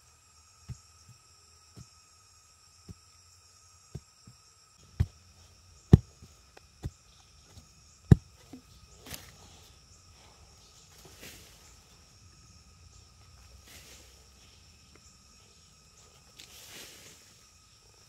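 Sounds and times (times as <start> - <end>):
forest insects droning: 0.0 - 18.0
rustling in leaf litter: 16.4 - 17.6.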